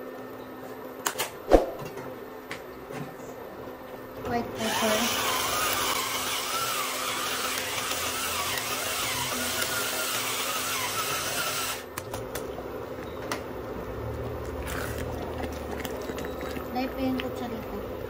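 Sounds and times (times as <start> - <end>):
electric pepper grinder whining: 4.5 - 11.9.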